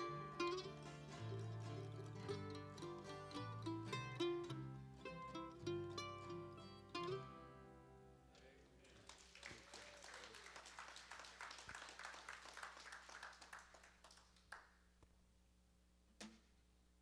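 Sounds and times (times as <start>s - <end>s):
faint applause: 0.0s - 3.4s, 8.3s - 14.8s.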